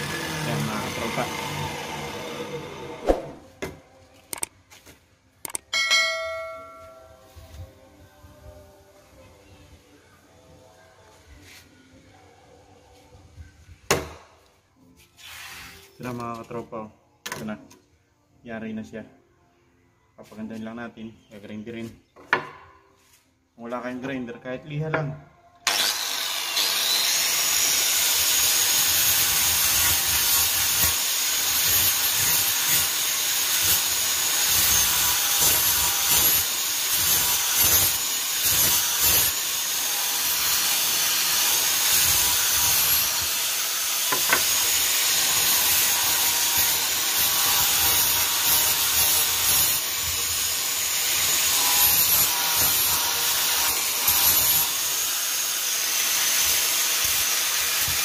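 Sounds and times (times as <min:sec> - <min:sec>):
angle grinder sanding plastic: 0:00.0 - 0:03.1.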